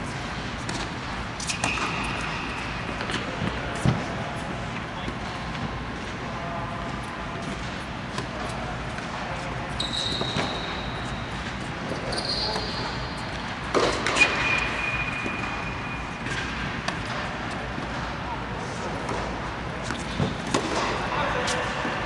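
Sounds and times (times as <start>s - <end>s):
rackets striking tennis balls: 0.0s - 6.2s, 6.8s - 18.3s, 18.9s - 22.0s
tennis balls bouncing: 6.9s - 18.2s, 19.0s - 21.1s
thin high squeaks: 9.7s - 13.3s.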